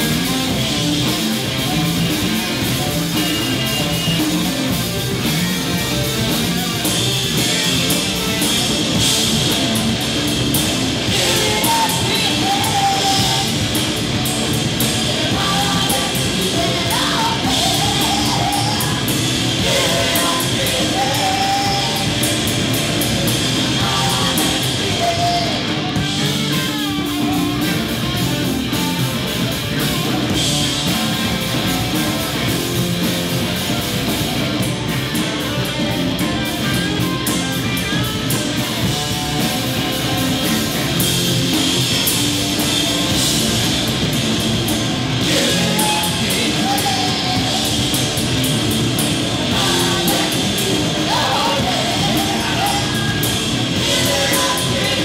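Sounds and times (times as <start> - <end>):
live rock band playing: 0.0 - 55.0
person singing: 11.1 - 13.8, 15.0 - 22.3, 23.7 - 26.5, 45.2 - 47.9, 49.5 - 55.0.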